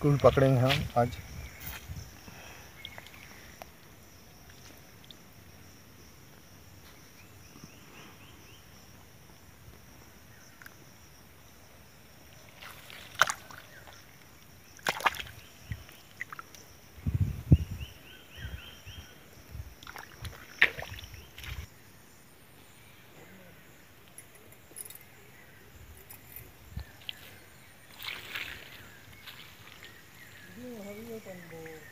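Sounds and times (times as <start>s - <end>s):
hand splashing in puddle: 12.6s - 14.0s, 14.8s - 15.4s, 19.8s - 21.6s.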